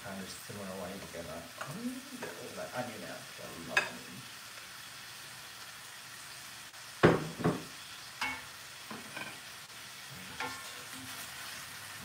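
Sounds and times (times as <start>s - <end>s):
food sizzling in a frying pan: 0.0s - 12.0s
cookware clattering knocks: 7.0s - 8.4s.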